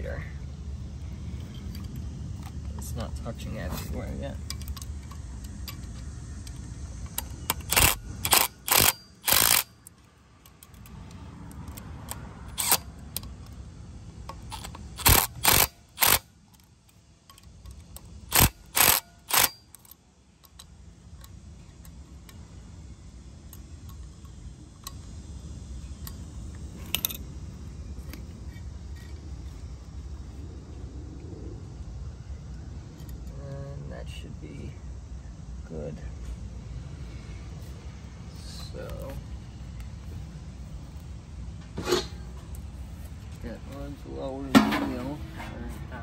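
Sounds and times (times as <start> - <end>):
impact driver bursts: 7.5 - 9.8, 14.5 - 16.3, 18.3 - 19.8.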